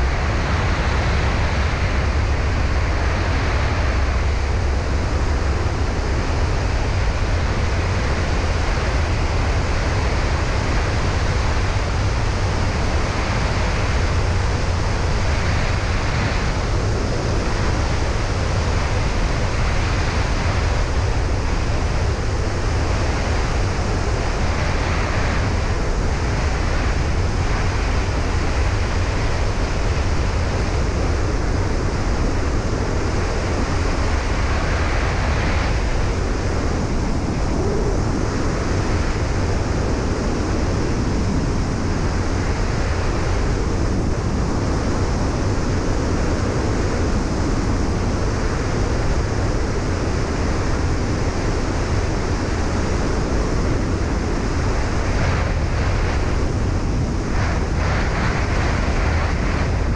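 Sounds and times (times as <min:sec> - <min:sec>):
wind buffeting camera: 0:00.0 - 0:59.9.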